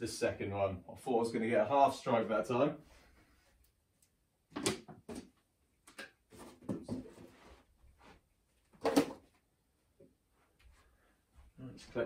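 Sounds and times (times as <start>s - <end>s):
plastic bottles knocking and clattering: 4.5s - 7.4s, 8.7s - 9.4s.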